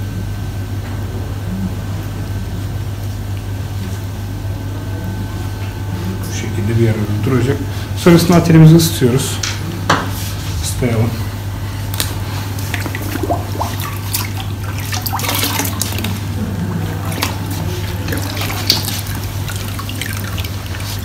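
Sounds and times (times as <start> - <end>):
steady low hum: 0.0 - 21.0
water dripping: 12.6 - 16.3, 17.0 - 21.0
splashing in a water bucket: 12.6 - 21.0.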